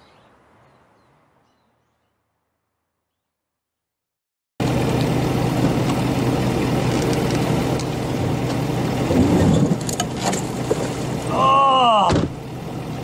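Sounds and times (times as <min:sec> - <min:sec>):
engine idling: 0:04.6 - 0:13.0.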